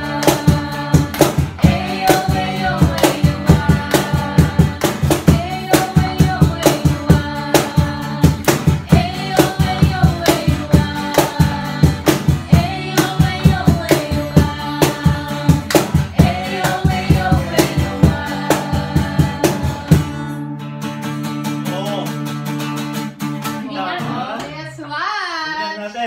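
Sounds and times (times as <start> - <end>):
hand claps: 0.0 - 2.2, 2.8 - 4.2, 8.3 - 8.8, 10.1 - 12.3, 14.9 - 16.8
group singing: 0.0 - 20.5, 23.6 - 26.0
strummed acoustic guitar: 0.0 - 24.6.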